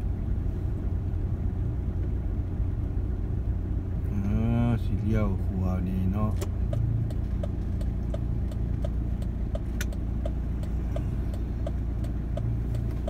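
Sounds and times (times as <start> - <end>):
vehicle engine running: 0.0 - 13.0
turn signal ticking: 4.0 - 13.0.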